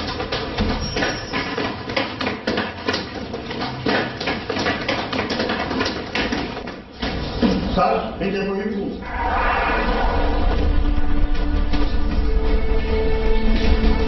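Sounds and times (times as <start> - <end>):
people running on stairs: 0.0 - 7.7.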